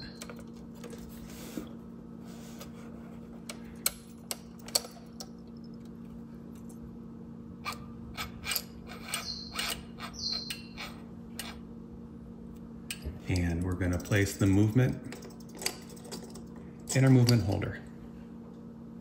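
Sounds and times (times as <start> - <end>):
steady low hum: 0.0 - 19.0
metallic clicks of clock parts: 12.9 - 17.7.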